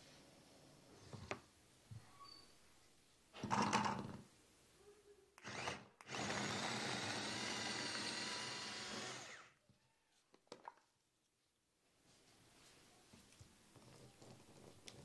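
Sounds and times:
food chopper motor whirring: 5.4s - 9.5s.

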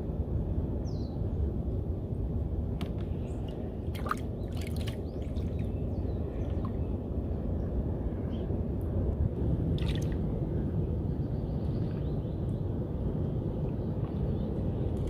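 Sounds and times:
steady low rumble: 0.0s - 15.0s
water lapping and dripping: 3.4s - 5.7s.

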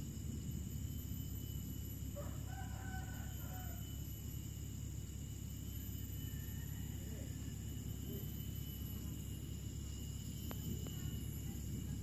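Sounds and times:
high insect drone: 0.0s - 12.0s
rooster crowing: 2.2s - 4.0s, 6.0s - 7.8s.

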